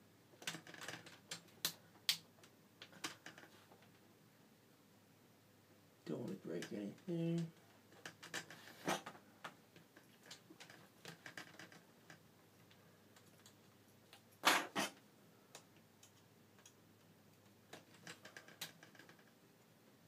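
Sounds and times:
plastic snaps: 0:00.4 - 0:03.2.

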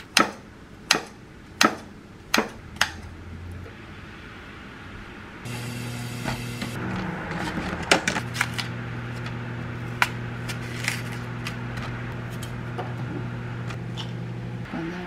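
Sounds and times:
microwave oven humming: 0:05.4 - 0:15.0.

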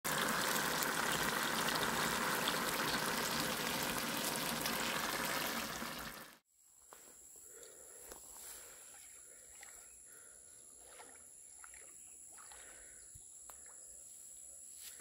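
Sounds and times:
fish sizzling in hot oil: 0:00.0 - 0:06.4.

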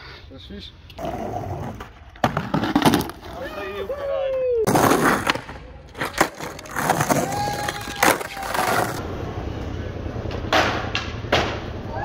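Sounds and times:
skateboard wheels rolling on stone: 0:01.0 - 0:11.8.

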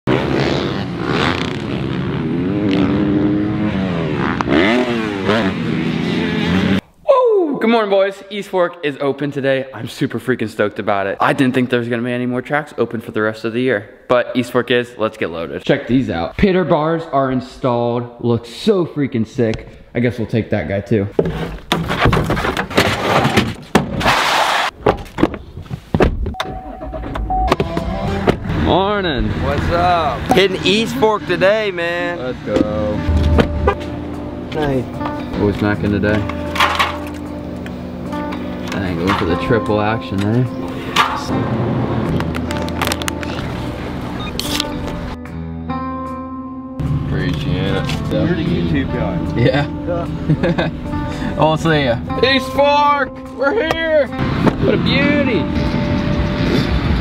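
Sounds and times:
dirt bike engine revving: 0:00.1 - 0:06.8, 0:33.0 - 0:34.5
vehicle electronic chime: 0:26.4 - 0:28.0, 0:30.3 - 0:31.0
brief rushing noise: 0:33.1 - 0:34.0.

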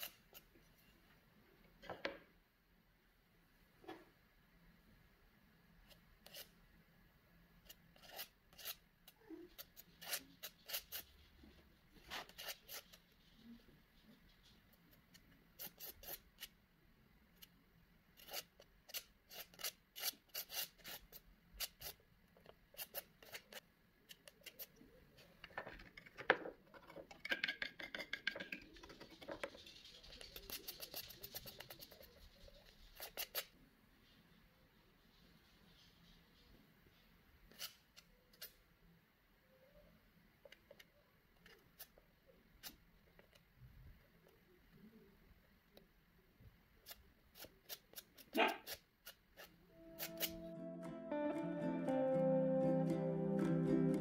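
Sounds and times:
palette knife scraping paint: 0:05.8 - 0:06.6, 0:07.6 - 0:16.6, 0:18.2 - 0:24.8, 0:27.7 - 0:33.6, 0:37.5 - 0:38.6, 0:46.8 - 0:50.5.

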